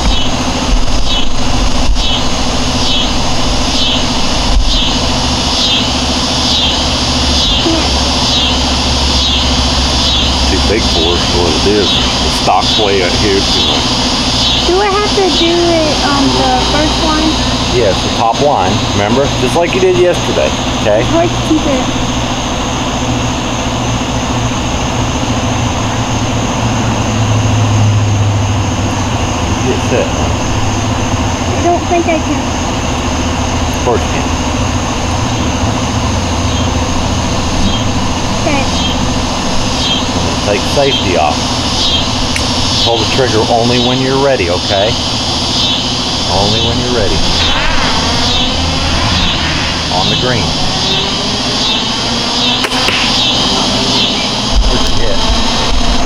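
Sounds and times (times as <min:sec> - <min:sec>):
high chirping: 0:00.0 - 0:22.4, 0:34.2 - 0:55.9
constant hiss: 0:00.0 - 0:24.4, 0:29.6 - 0:56.0
low mechanical hum: 0:00.0 - 0:56.0
low rumble: 0:00.0 - 0:56.0.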